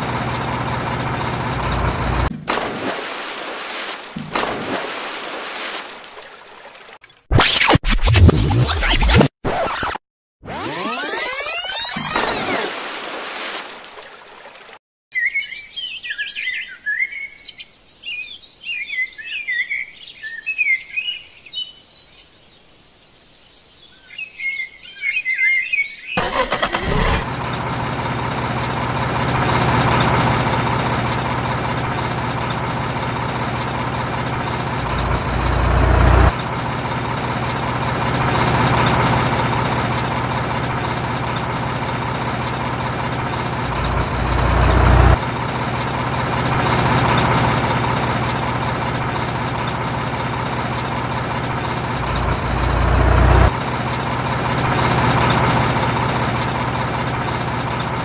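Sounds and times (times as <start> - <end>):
toy truck motor running: 26.2 - 27.3.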